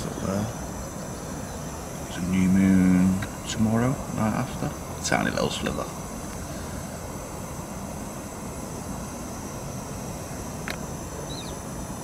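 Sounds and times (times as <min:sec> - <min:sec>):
low outdoor rumble: 0:00.0 - 0:12.0
faint bird chirp: 0:01.0 - 0:01.7, 0:11.1 - 0:11.7.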